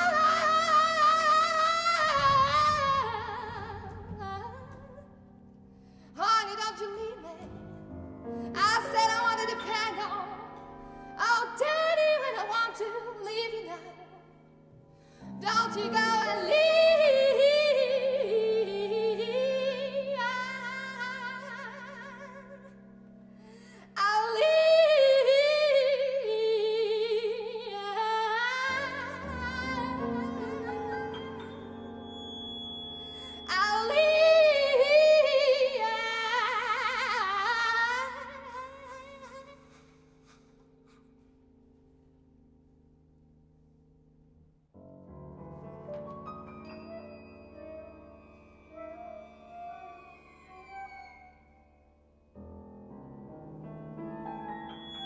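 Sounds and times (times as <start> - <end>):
soprano singing with vibrato: 0.0 - 5.2, 8.5 - 10.6, 11.2 - 14.3, 15.4 - 22.8, 24.0 - 32.3, 33.1 - 39.7.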